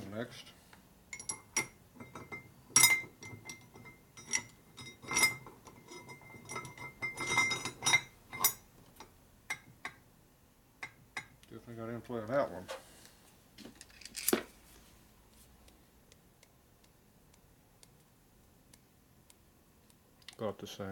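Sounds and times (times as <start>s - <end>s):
metal clinks and taps: 1.1s - 10.0s, 10.8s - 11.5s.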